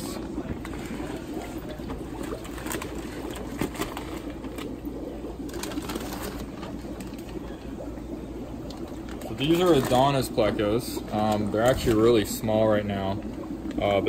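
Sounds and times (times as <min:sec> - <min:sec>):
aquarium air pumps bubbling: 0:00.0 - 0:14.0
plastic bags knocking and crinkling: 0:01.8 - 0:04.8.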